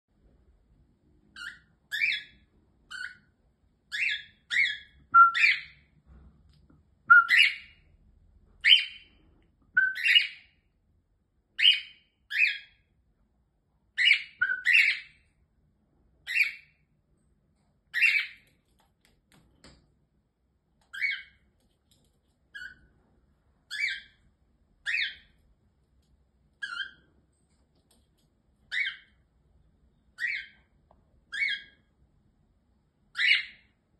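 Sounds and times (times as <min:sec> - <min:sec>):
cockatiels chirping whistles: 0:01.3 - 0:03.3, 0:03.9 - 0:05.8, 0:07.1 - 0:07.8, 0:08.6 - 0:09.0, 0:09.8 - 0:10.5, 0:11.6 - 0:12.8, 0:14.0 - 0:15.1, 0:17.9 - 0:18.4, 0:20.9 - 0:21.4, 0:23.7 - 0:24.2, 0:24.8 - 0:25.3, 0:26.6 - 0:27.1, 0:28.7 - 0:29.1, 0:30.1 - 0:30.6, 0:31.3 - 0:31.8, 0:33.1 - 0:33.7.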